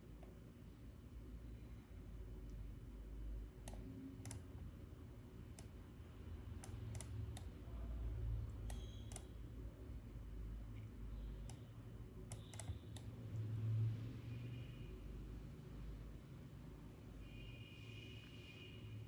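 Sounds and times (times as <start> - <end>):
low steady hum: 0.0 - 19.0
computer mouse clicks: 3.6 - 4.5, 5.5 - 5.8, 6.6 - 7.6, 8.5 - 9.4, 10.8 - 13.2.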